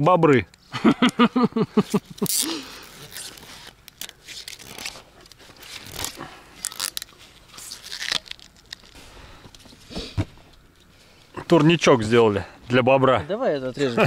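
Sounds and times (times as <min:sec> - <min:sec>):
hardware crunching and scraping: 0:01.9 - 0:12.3.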